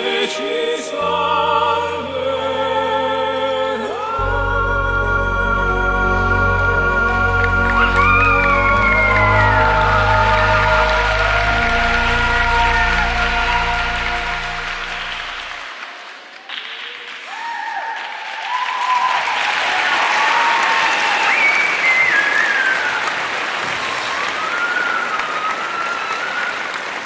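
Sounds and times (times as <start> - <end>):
music notes: 0.0 - 15.8
audience clapping: 7.1 - 27.0
audience whooping: 7.1 - 27.0.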